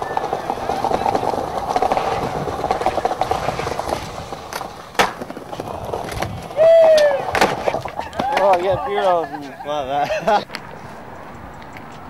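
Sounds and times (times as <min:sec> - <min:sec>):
skateboard clack: 0:00.0 - 0:09.6
skateboard grinding on concrete: 0:00.0 - 0:09.7.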